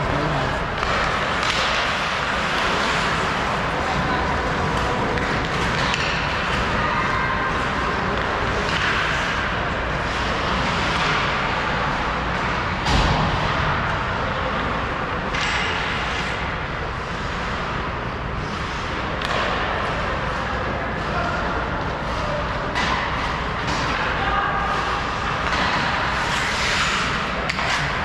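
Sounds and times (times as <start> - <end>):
ice hockey game noise: 0.0 - 28.0.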